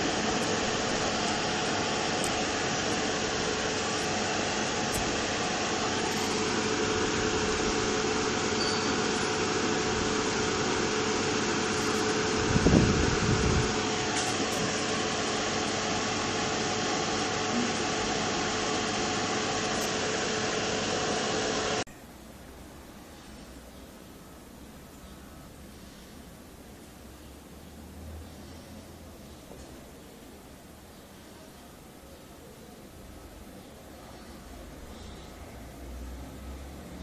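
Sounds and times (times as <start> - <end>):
hot-air blower hissing: 0.0 - 21.9.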